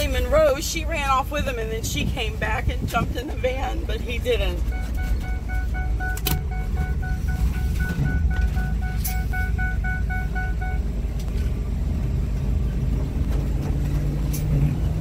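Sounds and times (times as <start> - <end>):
engine and road rumble: 0.0 - 15.0
dashboard warning chime beeping: 3.0 - 11.0.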